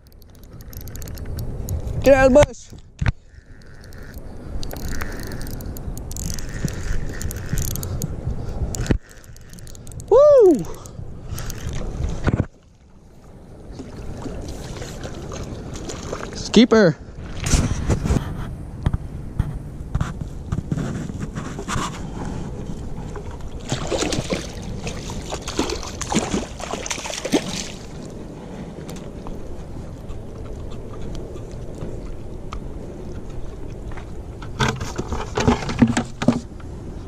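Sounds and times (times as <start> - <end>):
knocks and scraping on rocks: 0.2 - 9.9, 11.4 - 12.6, 17.3 - 27.8, 33.2 - 36.6
fish splashing in water: 23.6 - 28.1.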